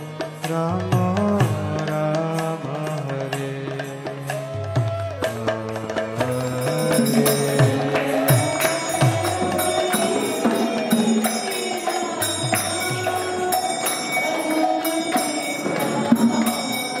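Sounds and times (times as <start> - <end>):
ringing hand cymbal strikes: 0.0 - 17.0
two-headed hand drum strokes: 0.0 - 17.0.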